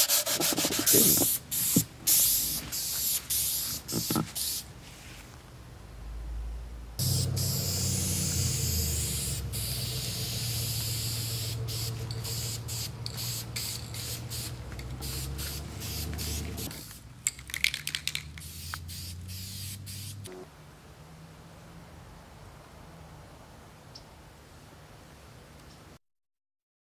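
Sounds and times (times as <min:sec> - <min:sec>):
aerosol spray hissing: 0:00.0 - 0:04.7, 0:07.0 - 0:17.0, 0:18.4 - 0:20.3.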